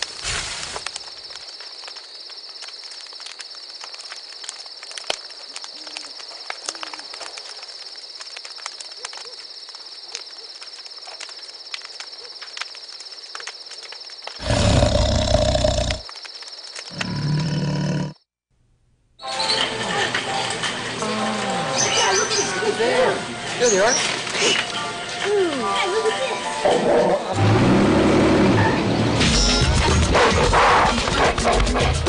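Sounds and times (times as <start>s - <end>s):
animal roars: 14.4s - 16.0s, 16.9s - 18.2s, 26.6s - 28.9s.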